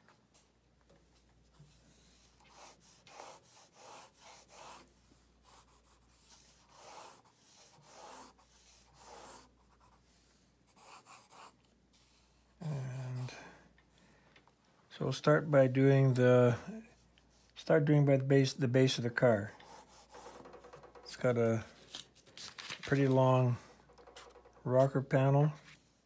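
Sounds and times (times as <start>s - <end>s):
pencil scratching on paper: 1.6s - 13.4s, 18.8s - 21.9s, 23.0s - 25.0s.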